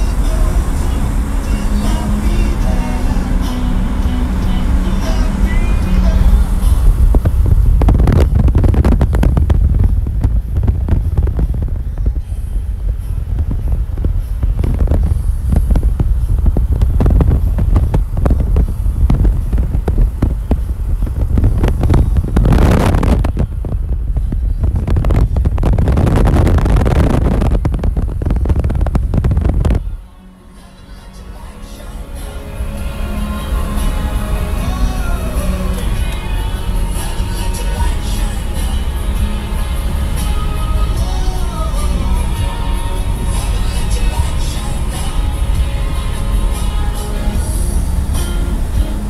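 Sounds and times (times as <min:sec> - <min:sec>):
wind buffeting microphone: 0:00.0 - 0:30.0
car road rumble: 0:00.0 - 0:49.0.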